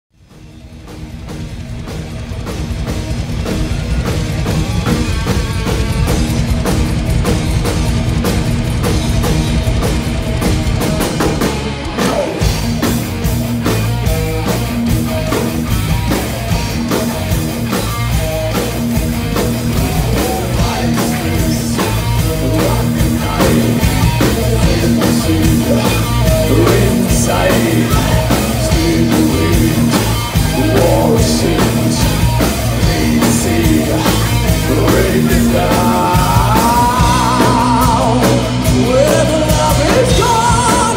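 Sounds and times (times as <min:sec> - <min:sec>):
bass guitar: 0:00.1 - 0:40.9
distorted electric guitar: 0:00.1 - 0:40.9
pounding drum kit: 0:00.1 - 0:40.9
man singing: 0:19.7 - 0:40.9.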